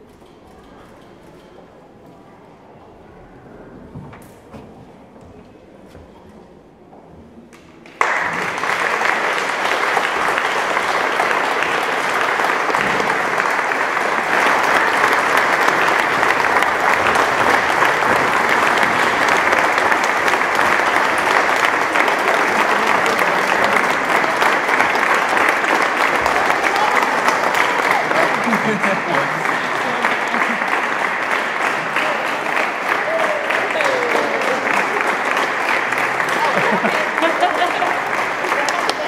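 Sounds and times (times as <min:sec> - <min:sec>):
audience applause: 0:07.8 - 0:39.0.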